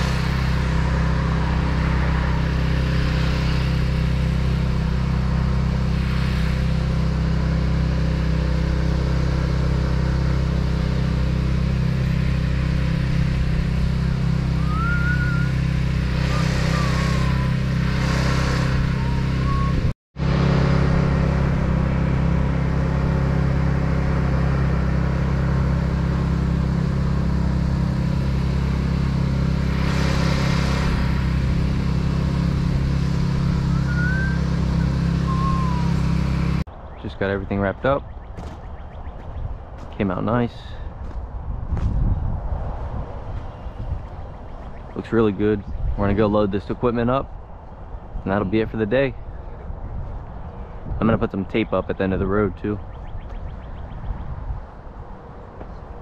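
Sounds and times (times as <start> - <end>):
spray rig engine running: 0.0 - 36.7.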